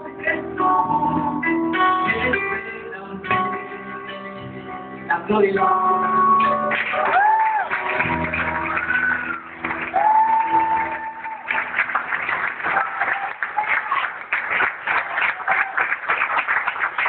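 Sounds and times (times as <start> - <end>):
person singing: 0.0 - 11.5
keyboard chords: 0.0 - 13.0
crowd applause: 6.4 - 17.0.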